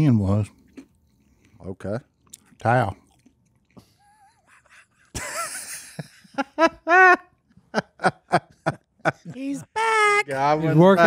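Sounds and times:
men laughing: 0:03.8 - 0:11.0.

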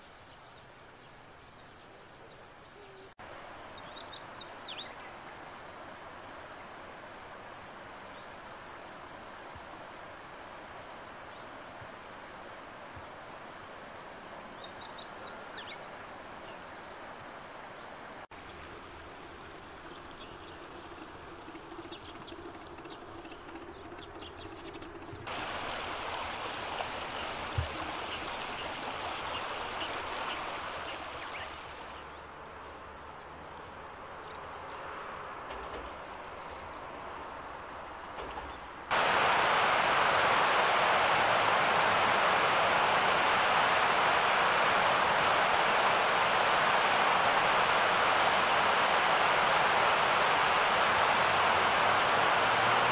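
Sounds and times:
songbird calls: 0:00.0 - 0:05.2, 0:21.7 - 0:34.9, 0:42.0 - 0:52.9
river water running: 0:00.0 - 0:52.9.

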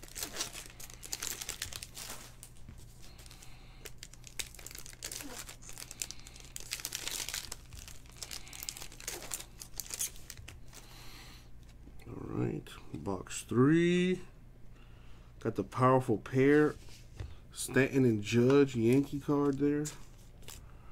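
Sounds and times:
foil wrappers crinkling: 0:00.0 - 0:11.1.

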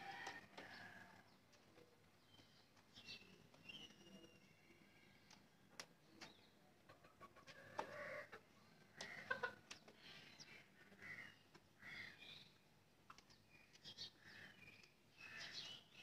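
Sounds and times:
chickens clucking: 0:06.2 - 0:11.8.

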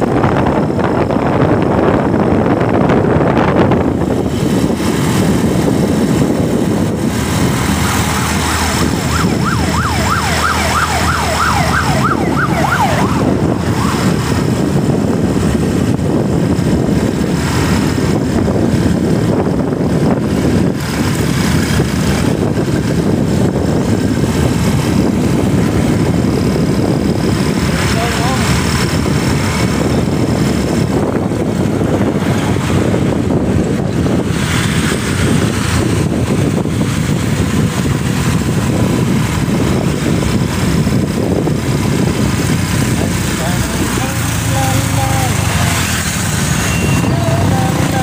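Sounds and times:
wind rush and road noise: 0:00.0 - 0:48.0
siren-like electronic warble: 0:07.8 - 0:14.5, 0:46.6 - 0:48.0.

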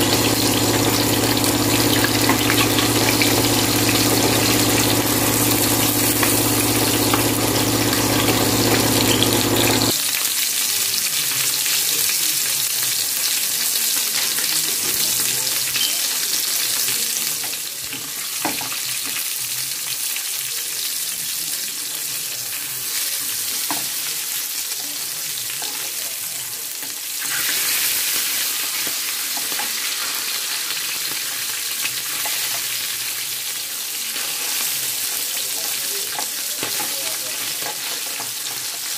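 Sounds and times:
low mechanical hum: 0:00.0 - 0:09.9
fish sizzling in hot oil: 0:00.0 - 0:38.9.

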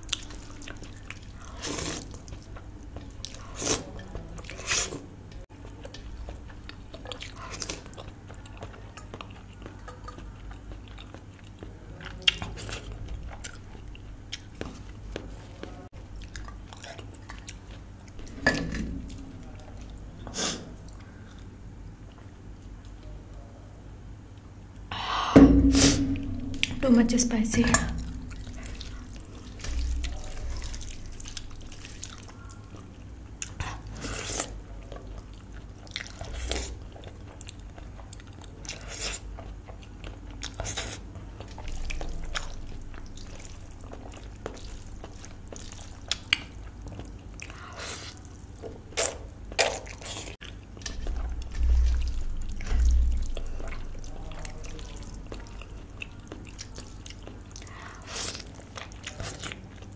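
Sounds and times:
wet chewing and mouth noises: 0:00.0 - 0:23.1, 0:25.6 - 0:59.9
low thumps: 0:25.2 - 0:30.1.

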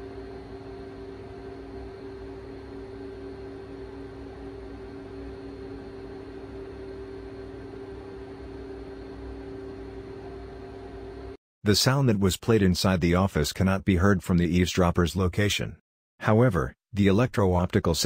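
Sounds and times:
room hiss and hum: 0:00.0 - 0:13.0.

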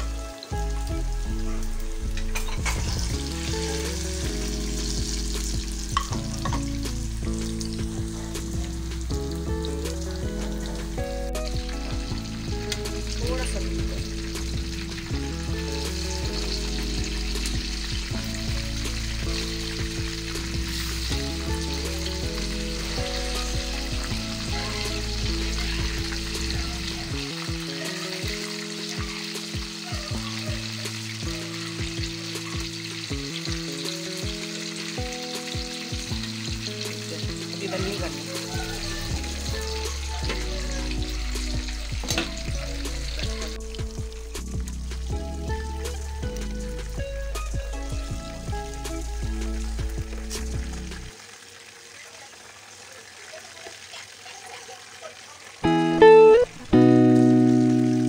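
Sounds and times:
background music with beat: 0:00.0 - 0:51.2, 0:55.6 - 0:58.0
fish deep-frying in sizzling oil: 0:00.0 - 0:58.0
metal spatula in pan: 0:02.1 - 0:03.1.

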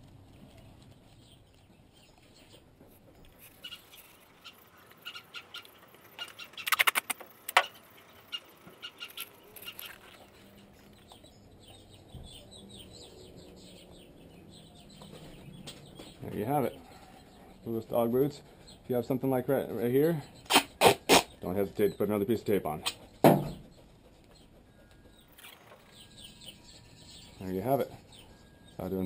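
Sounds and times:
duct tape ripping off the roll: 0:06.6 - 0:07.7, 0:20.5 - 0:21.3.

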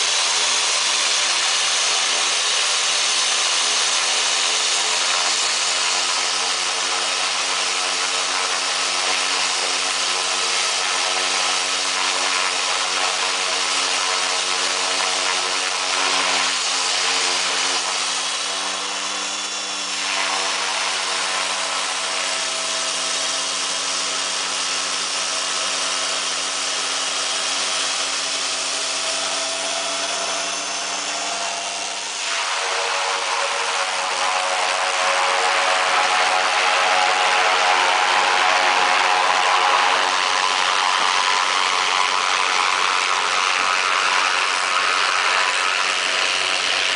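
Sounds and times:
turbine whine and hiss: 0:00.0 - 0:46.9
propeller hum: 0:11.0 - 0:46.9.

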